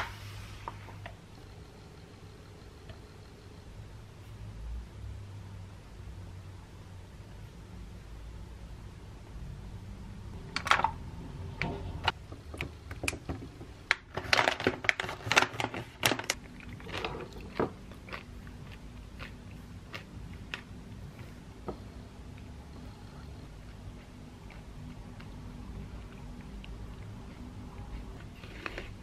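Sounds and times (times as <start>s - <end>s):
crunching granola: 14.2s - 20.8s.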